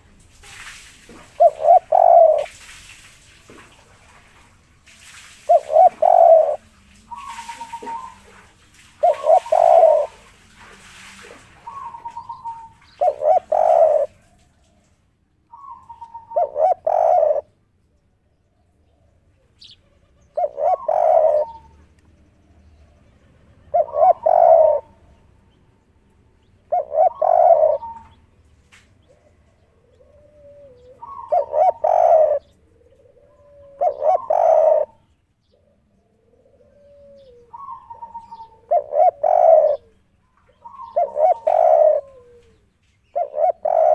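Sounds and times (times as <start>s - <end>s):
dove cooing: 1.1s - 2.6s, 5.5s - 14.3s, 15.5s - 17.5s, 18.9s - 21.8s, 23.6s - 25.2s, 26.4s - 28.2s, 29.0s - 43.9s.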